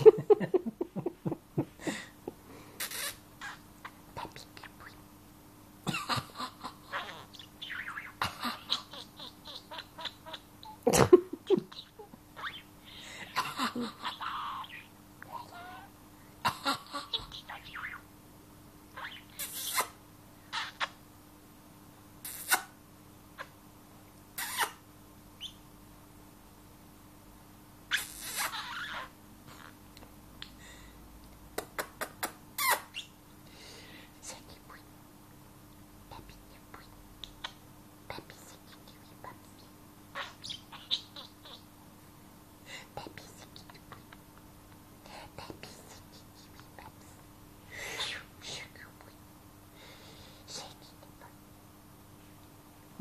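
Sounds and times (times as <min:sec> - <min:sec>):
budgerigar chattering and warbling: 0:02.8 - 0:03.6, 0:06.8 - 0:10.8, 0:14.0 - 0:15.9, 0:16.6 - 0:18.0, 0:19.0 - 0:20.0, 0:40.2 - 0:41.6.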